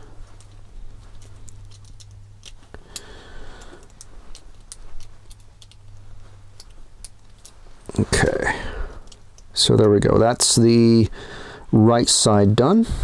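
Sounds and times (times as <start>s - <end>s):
small parts clicking and ticking: 0.0s - 10.3s.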